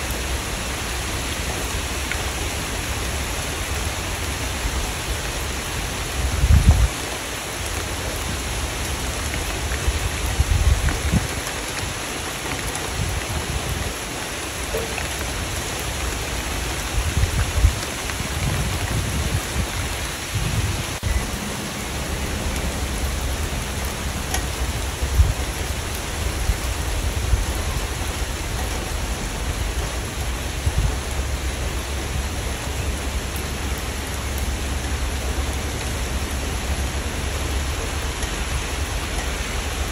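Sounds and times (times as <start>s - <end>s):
steady rain: 0.0s - 39.9s
low rumbles: 16.0s - 39.9s.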